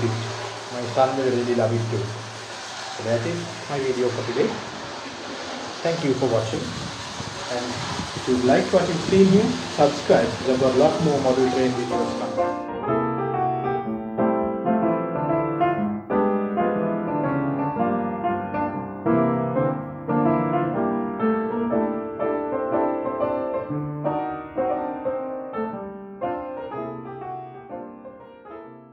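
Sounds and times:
piano melody over chords: 0:08.3 - 0:28.9.

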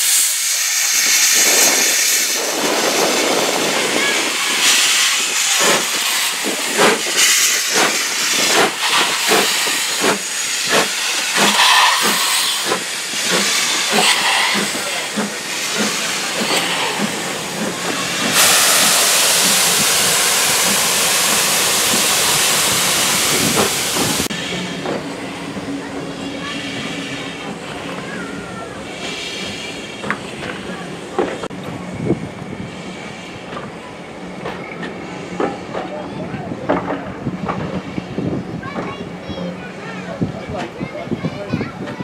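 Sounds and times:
steam hissing: 0:00.0 - 0:31.5
steam locomotive exhaust beats: 0:00.0 - 0:42.0.

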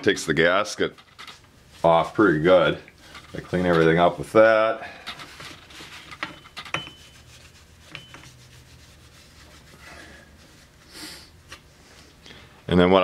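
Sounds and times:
rag scrubbing metal: 0:05.0 - 0:10.9.

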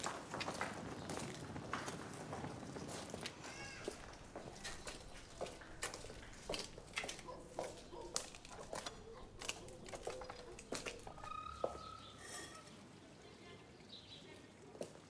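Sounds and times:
footsteps on cobbles: 0:00.0 - 0:12.1
faint high animal calls: 0:11.1 - 0:12.8.

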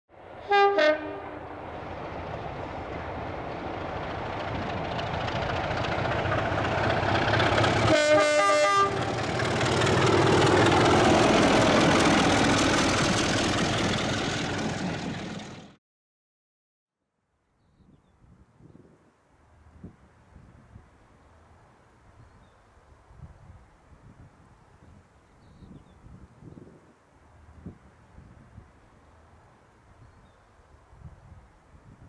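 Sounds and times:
diesel locomotive engine: 0:00.1 - 0:15.8
train wheel noise: 0:00.3 - 0:15.8
locomotive horn: 0:00.4 - 0:01.4, 0:07.8 - 0:09.4.

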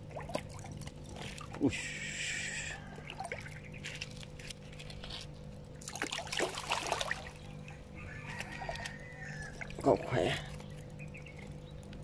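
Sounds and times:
water splashing from fish: 0:00.0 - 0:02.0, 0:05.8 - 0:07.5.

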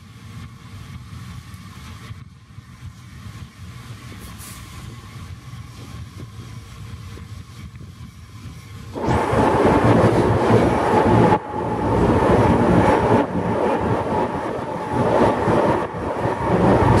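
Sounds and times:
train wheels rattling rumble: 0:00.0 - 0:17.0
steady train whine: 0:02.2 - 0:17.0.

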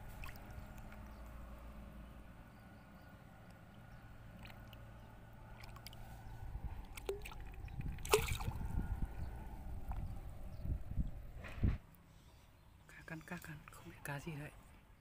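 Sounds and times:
fish thrashing in water: 0:00.0 - 0:01.6, 0:03.5 - 0:10.0.

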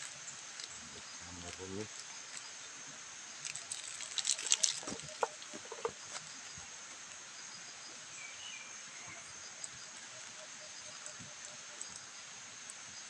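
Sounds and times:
high insect drone: 0:00.0 - 0:13.0
hand rustling and crackling: 0:03.4 - 0:06.5.

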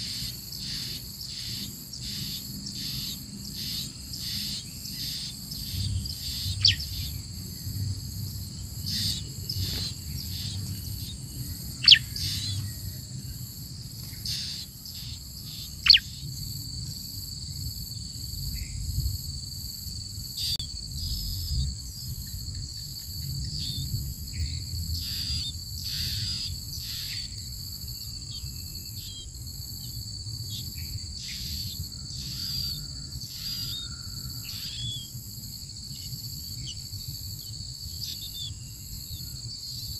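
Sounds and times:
high-pitched insect drone: 0:00.0 - 0:18.8.

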